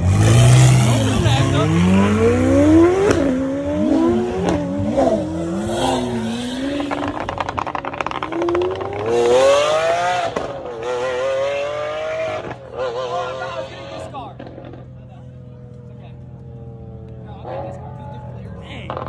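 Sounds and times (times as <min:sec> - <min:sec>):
car engines accelerating hard: 0:00.0 - 0:19.0
exhaust popping and crackling: 0:04.4 - 0:09.4, 0:18.7 - 0:19.0.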